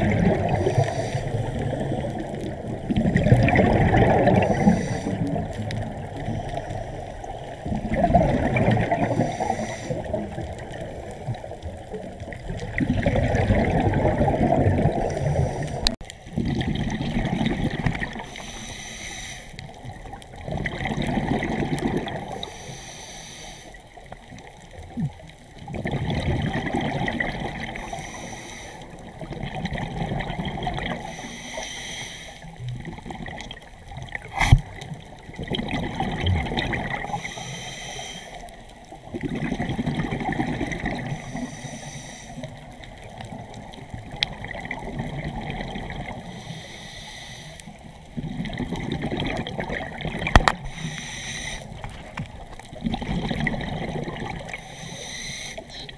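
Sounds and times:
water sloshing and gurgling: 0:00.0 - 0:55.9.

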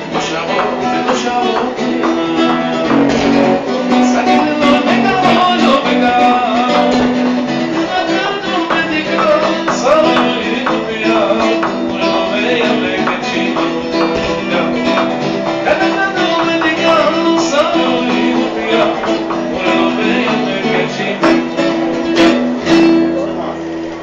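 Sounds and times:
man singing into a microphone: 0:00.0 - 0:22.0
acoustic guitar strumming: 0:00.0 - 0:24.0.

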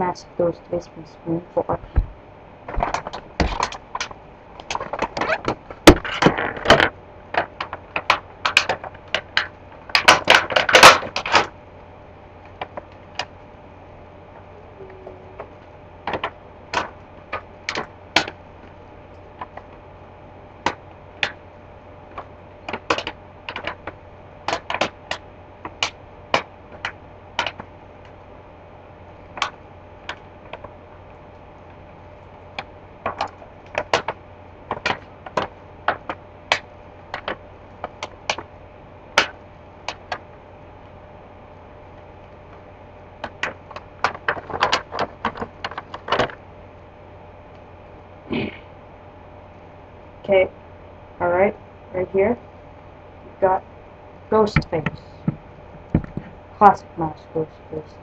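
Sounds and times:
plastic packaging clicking and crinkling: 0:43.2 - 0:46.4.

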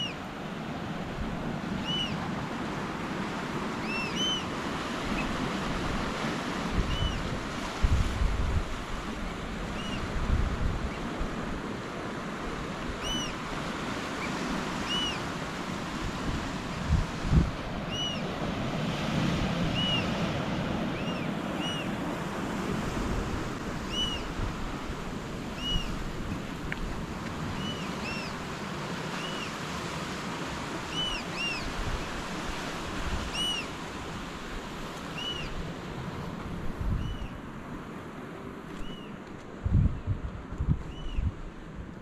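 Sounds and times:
ocean surf washing: 0:00.0 - 0:42.0
wind buffeting microphone: 0:04.8 - 0:11.7, 0:15.8 - 0:28.0, 0:35.4 - 0:37.4, 0:39.5 - 0:42.0.

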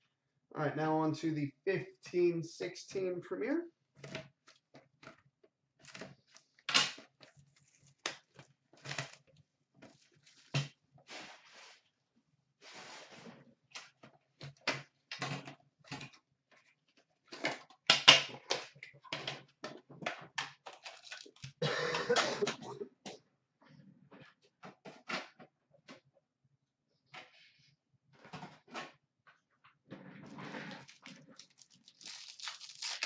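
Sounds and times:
plastic wrapper crinkling: 0:20.6 - 0:21.6, 0:30.7 - 0:33.0.

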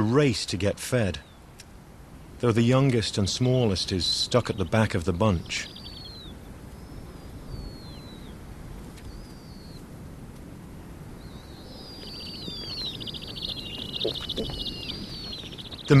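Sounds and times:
wind rumble: 0:01.4 - 0:16.0
owlets giving high thin calls: 0:11.3 - 0:16.0.

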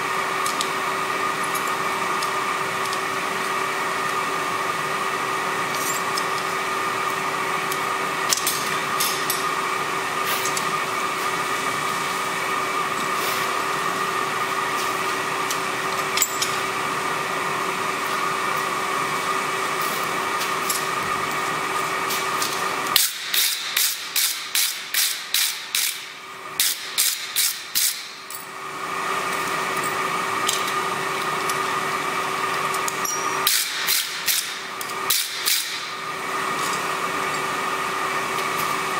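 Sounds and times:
blower fan hum: 0:00.0 - 0:38.9
hammer striking steel anvil: 0:33.0 - 0:34.4.

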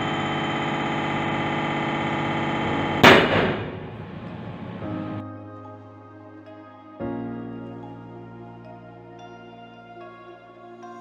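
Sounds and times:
testing machine humming: 0:00.0 - 0:05.2
steel bar snapping bang: 0:03.0 - 0:03.9.

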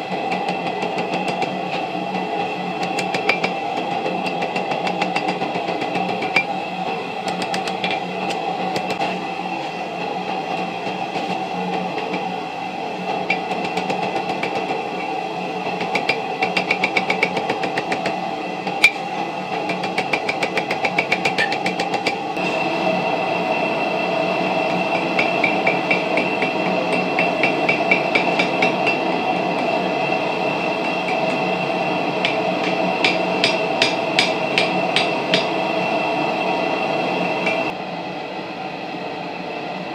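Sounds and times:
steady droning hum: 0:05.4 - 0:37.8
hammer striking metal on anvil: 0:15.8 - 0:19.0, 0:19.7 - 0:22.2, 0:24.9 - 0:29.8, 0:30.8 - 0:31.4, 0:32.2 - 0:35.6.

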